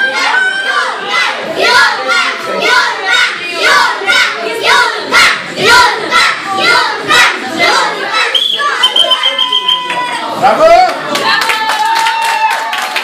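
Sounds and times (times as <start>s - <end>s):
children shouting: 0.0s - 10.4s.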